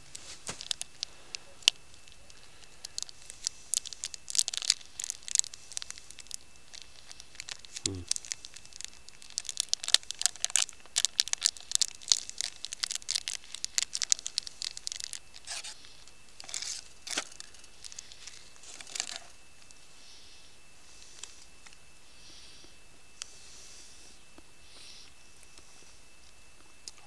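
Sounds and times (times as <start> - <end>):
soft rustles: 0.0 - 1.4
packaging crinkling and tearing: 0.0 - 19.8.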